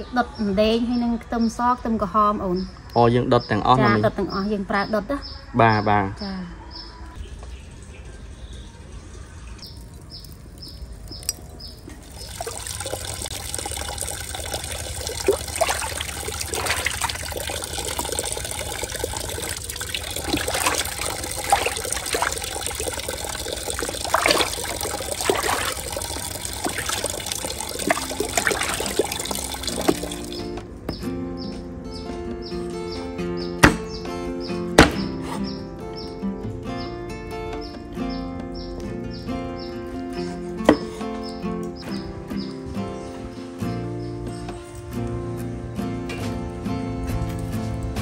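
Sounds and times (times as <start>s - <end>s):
water splashing and sloshing: 7.2s - 30.7s.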